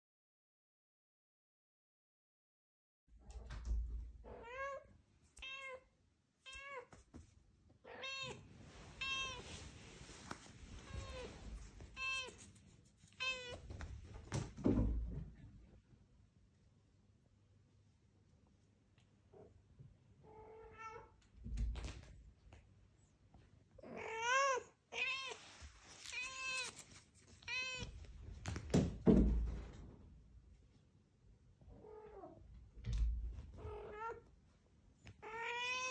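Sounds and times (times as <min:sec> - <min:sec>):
cat meowing: 0:04.2 - 0:06.9, 0:07.8 - 0:09.5, 0:10.8 - 0:12.5, 0:13.2 - 0:13.7, 0:23.8 - 0:25.4, 0:26.0 - 0:26.8, 0:27.4 - 0:28.1, 0:35.2 - 0:35.9.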